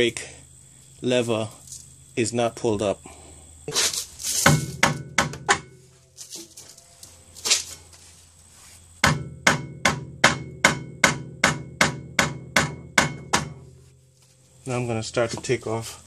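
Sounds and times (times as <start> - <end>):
mallet striking metal rotor: 9.1 - 13.6.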